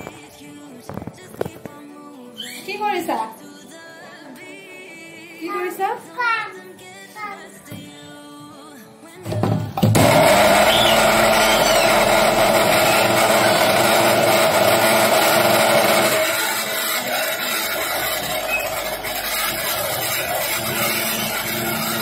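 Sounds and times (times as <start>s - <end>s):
mixer grinder whining: 9.8s - 22.0s.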